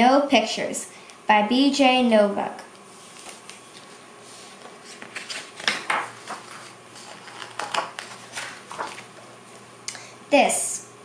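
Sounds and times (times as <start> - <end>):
book pages rustling: 2.9 - 9.4.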